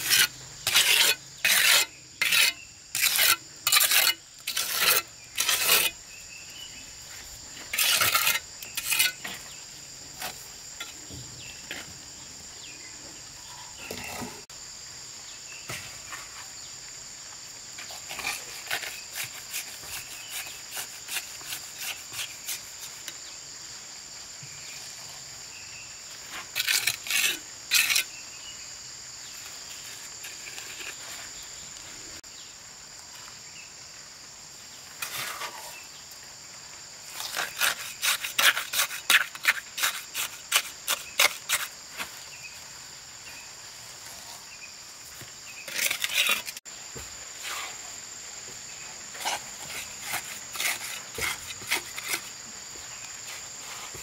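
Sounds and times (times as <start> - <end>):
hand tool scraping mortar: 0.0 - 6.0, 7.0 - 9.5, 17.8 - 23.2, 26.2 - 28.1, 29.7 - 31.4, 35.0 - 35.8, 37.1 - 42.2, 45.2 - 46.7, 49.1 - 54.0
high insect drone: 0.0 - 54.0.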